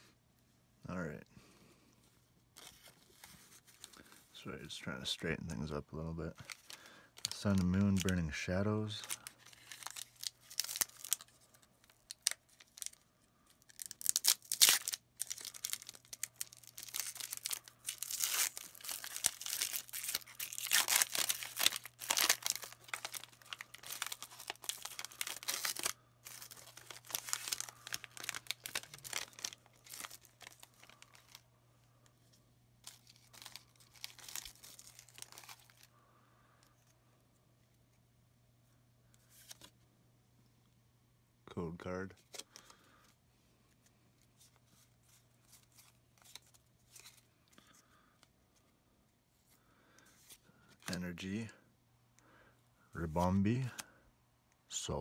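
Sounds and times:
foil wrapper tearing and crinkling: 6.4 - 13.0, 13.6 - 31.4, 32.8 - 35.9.

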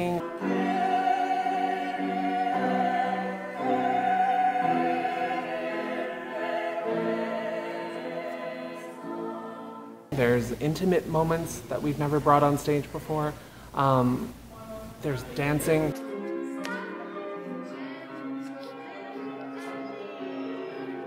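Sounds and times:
choir singing held chords: 0.0 - 10.2, 15.8 - 21.0
piano accompaniment: 0.0 - 13.2.

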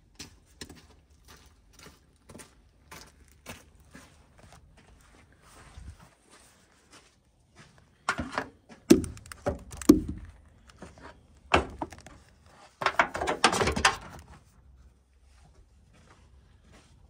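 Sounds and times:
sharp knocks and clunks: 8.1 - 10.4, 11.5 - 12.1, 12.8 - 14.2.

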